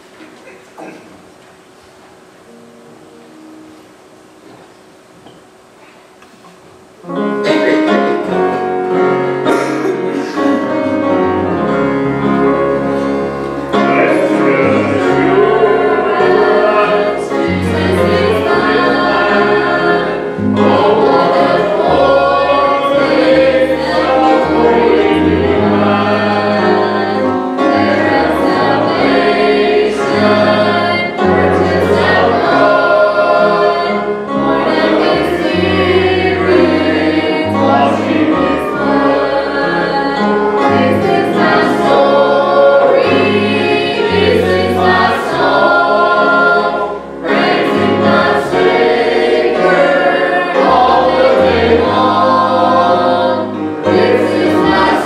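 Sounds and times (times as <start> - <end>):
acoustic guitar: 0.0 - 55.0
choir singing a hymn: 7.0 - 55.0.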